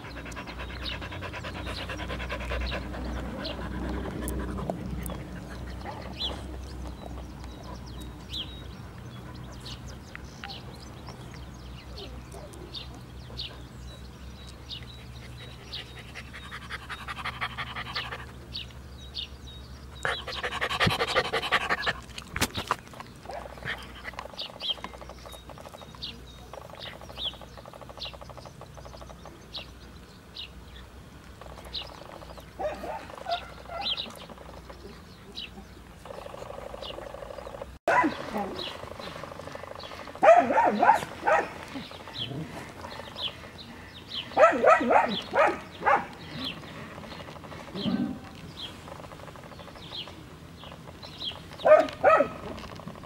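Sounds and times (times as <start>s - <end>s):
dog panting: 0.0s - 10.0s, 14.7s - 18.6s, 20.0s - 24.8s.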